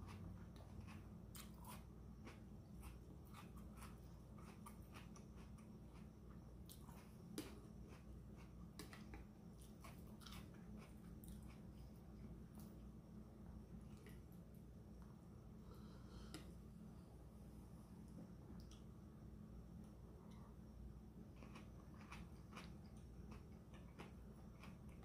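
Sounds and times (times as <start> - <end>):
chewing crunchy vegetables: 0.0 - 12.8, 21.2 - 25.0.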